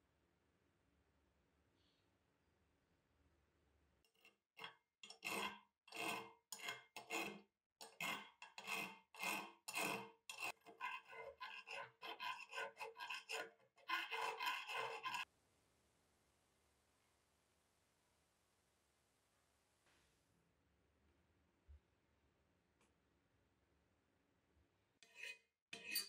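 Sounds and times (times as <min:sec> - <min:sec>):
file rasping on metal: 0:04.6 - 0:15.3, 0:25.0 - 0:26.0.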